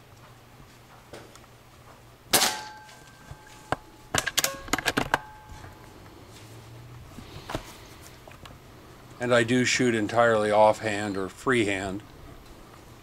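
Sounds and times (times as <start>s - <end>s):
air pistol shot: 2.3s - 2.8s.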